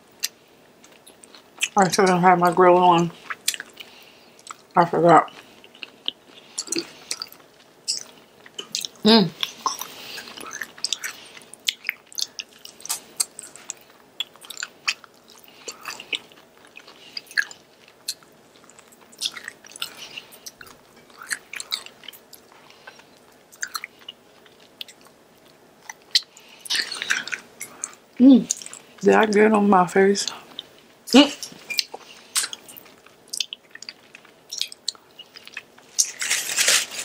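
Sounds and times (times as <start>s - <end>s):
person chewing chicken wings: 3.1s - 29.0s, 30.3s - 37.0s
wet mouth clicks and smacks: 31.4s - 35.7s.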